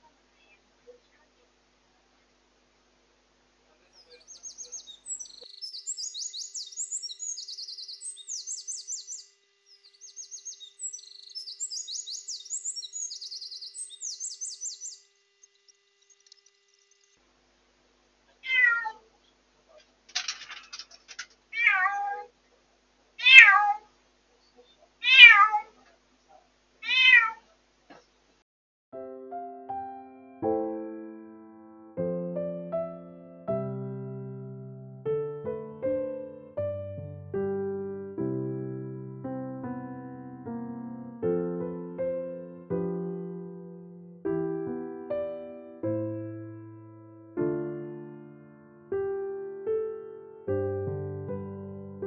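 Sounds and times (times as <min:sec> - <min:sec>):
high fluttering chirps: 0:04.0 - 0:17.2
cat meowing: 0:18.4 - 0:19.1, 0:21.5 - 0:22.3, 0:23.2 - 0:23.9, 0:25.0 - 0:25.8, 0:26.8 - 0:27.5.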